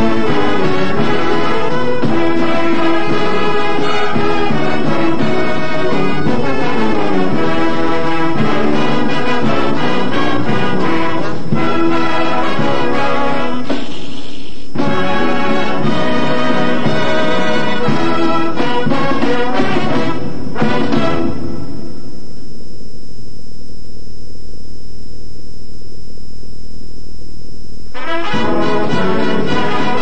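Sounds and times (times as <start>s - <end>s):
marching band playing: 0.0s - 13.8s, 14.8s - 21.6s, 28.0s - 30.0s
trombones and trumpets: 0.0s - 13.9s, 14.8s - 21.9s, 27.9s - 30.0s.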